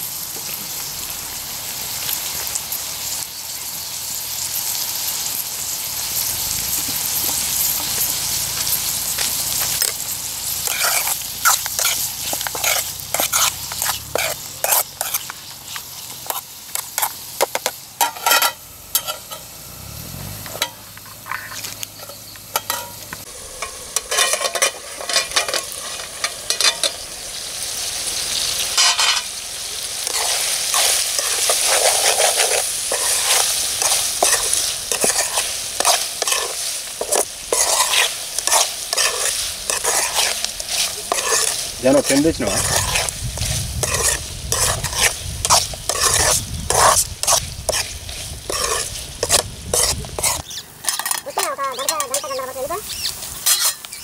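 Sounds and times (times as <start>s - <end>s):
meat sizzling in a pot: 0.0s - 54.0s
metal ladle scraping a pot: 10.6s - 19.5s, 20.4s - 23.0s, 23.6s - 27.0s, 28.8s - 29.3s, 30.0s - 52.6s, 53.4s - 53.9s.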